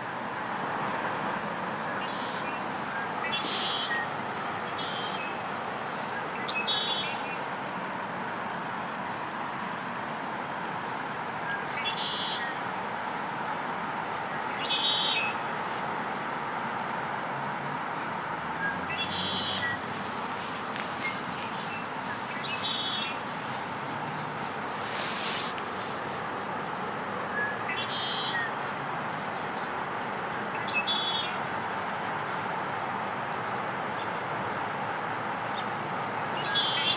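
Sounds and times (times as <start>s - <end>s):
background hiss: 1.2s - 14.0s, 18.6s - 28.3s
blackbird singing: 1.9s - 7.4s, 11.5s - 12.6s, 18.6s - 23.2s, 27.4s - 29.2s, 36.3s - 36.9s.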